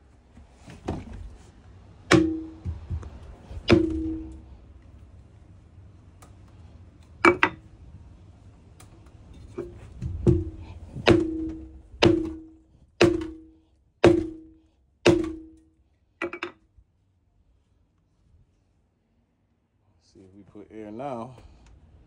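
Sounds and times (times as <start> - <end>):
hammer ringing on metal rim: 2.1 - 3.0, 3.7 - 4.5, 10.3 - 15.6.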